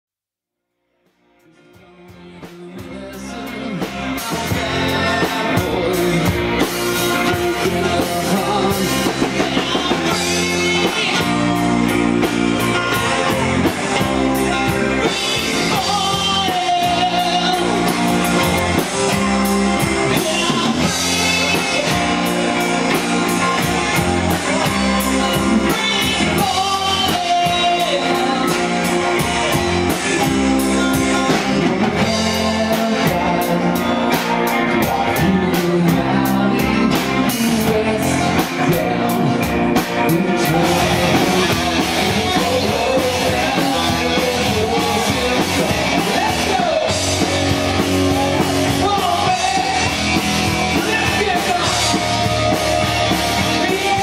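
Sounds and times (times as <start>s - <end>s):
drum kit: 1.0s - 54.0s
electric guitars: 1.1s - 54.0s
person singing: 1.4s - 54.0s.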